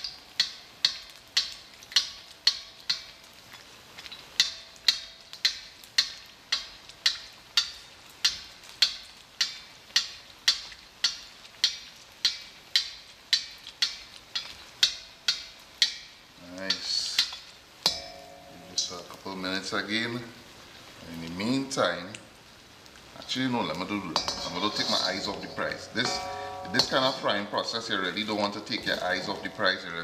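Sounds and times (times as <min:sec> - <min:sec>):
sharp ringing percussive ticks: 0:17.2 - 0:18.9, 0:24.1 - 0:27.9.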